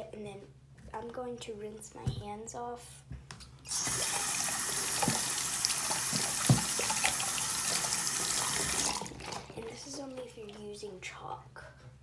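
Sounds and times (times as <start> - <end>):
tap water running: 3.7 - 9.4
hands knocking on sink: 6.1 - 6.8.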